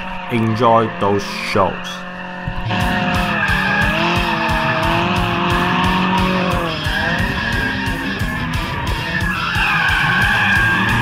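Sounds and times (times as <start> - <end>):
car engine revving: 0.0 - 11.0
tyre squeal: 2.0 - 11.0
music with a steady beat: 2.5 - 11.0.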